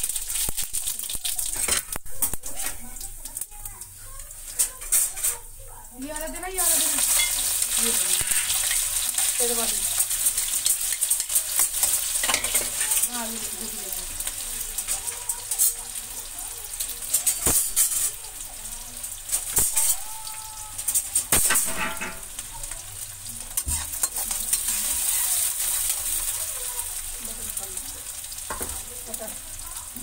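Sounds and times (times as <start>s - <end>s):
onions sizzling in hot oil: 0.0s - 30.0s
spatula stirring: 6.2s - 20.1s, 20.8s - 29.9s
metal clinks against pan: 17.1s - 18.2s, 21.0s - 22.4s.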